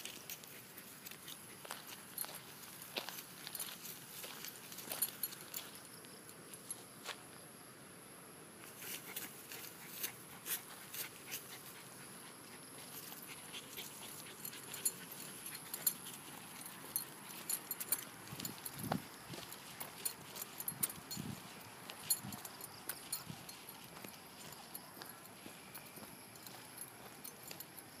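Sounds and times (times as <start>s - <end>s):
faint high-pitched hiss: 0.0s - 28.0s
footsteps on grass: 1.6s - 5.7s, 18.2s - 27.3s.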